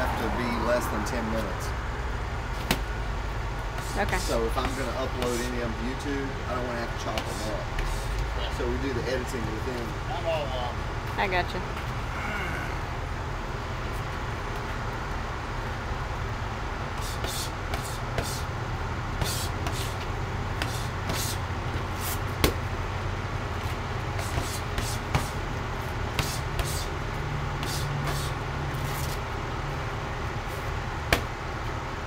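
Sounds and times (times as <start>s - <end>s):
low rumble of traffic: 0.0s - 32.0s
boxing gloves smacking mitts: 2.5s - 3.0s, 3.7s - 5.5s, 16.9s - 18.5s, 19.1s - 22.8s, 23.5s - 29.2s, 31.0s - 31.4s
short hissing sounds: 3.7s - 4.1s, 7.2s - 8.2s, 17.0s - 18.5s, 19.2s - 20.0s, 20.6s - 21.4s, 27.6s - 29.2s.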